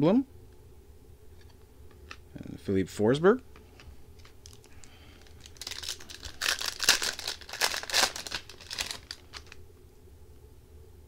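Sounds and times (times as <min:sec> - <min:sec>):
foil pack crinkling and tearing: 0:04.4 - 0:09.6.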